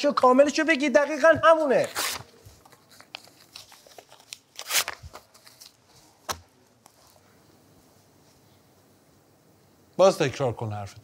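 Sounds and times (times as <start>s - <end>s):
paper rustling: 1.1s - 7.2s.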